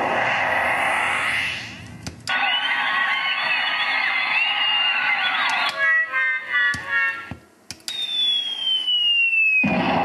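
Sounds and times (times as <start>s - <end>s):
rumbling sound effect: 0.0s - 5.3s
crowd cheering with whistled whoops: 2.3s - 5.8s, 7.9s - 9.9s.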